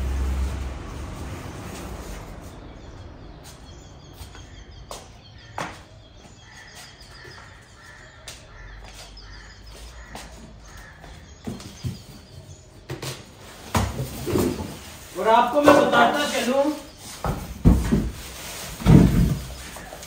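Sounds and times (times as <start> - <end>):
small birds chirping: 1.7 - 20.0
crows cawing: 6.4 - 11.4.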